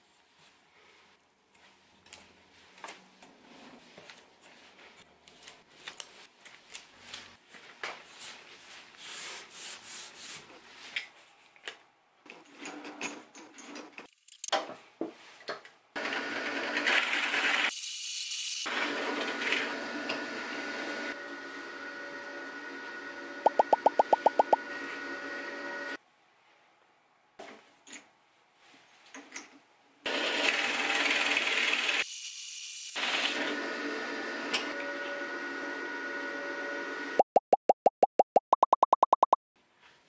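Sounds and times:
drill press boring wood: 30.1 - 32.0.

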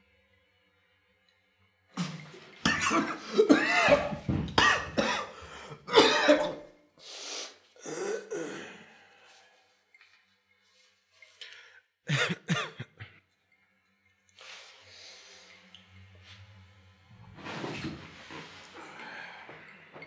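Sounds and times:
man coughing: 2.0 - 6.7, 12.1 - 13.2.

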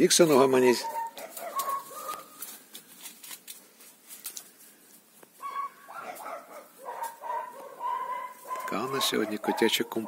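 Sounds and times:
dog whining: 0.8 - 2.3, 5.4 - 9.6.

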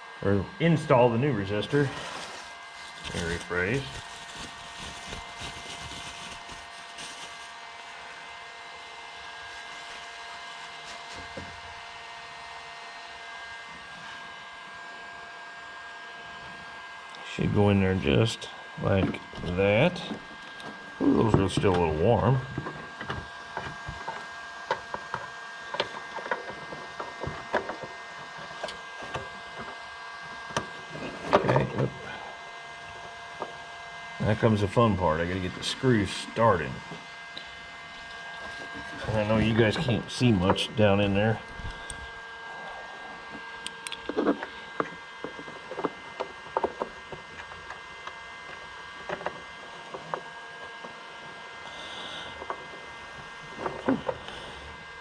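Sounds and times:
faint steady hum: 0.0 - 55.0
handling noise: 1.8 - 7.5.

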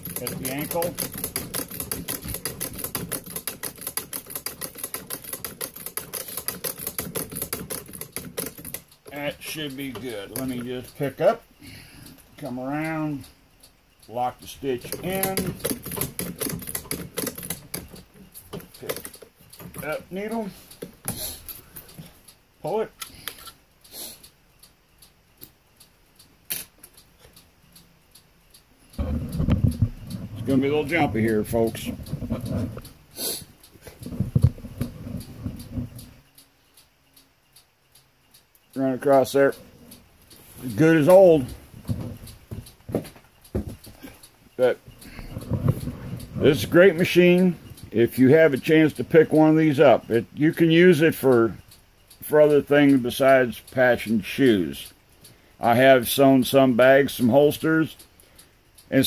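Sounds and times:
sewing machine stitching leather: 0.0 - 8.8
light ticks: 0.0 - 59.0
sharp click: 26.5 - 27.5.

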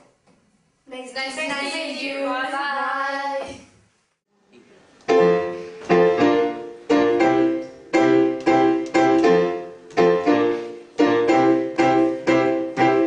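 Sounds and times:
digital piano chords: 5.1 - 13.0.

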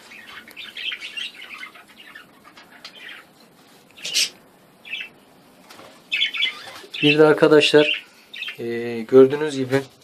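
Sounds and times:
budgerigars chattering: 0.0 - 3.4, 4.0 - 5.2, 6.1 - 8.8.

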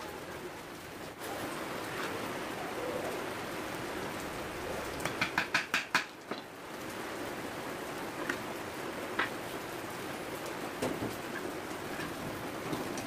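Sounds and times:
hammer tapping nail into wood: 5.0 - 6.1.

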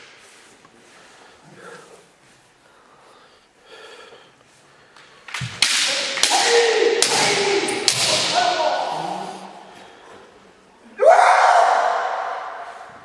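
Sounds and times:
bamboo swords striking: 5.3 - 8.8
fencers shouting: 5.8 - 9.7.

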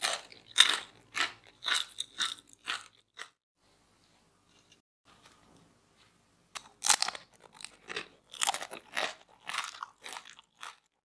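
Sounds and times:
potato chip crunching: 0.0 - 3.3, 6.6 - 11.0.

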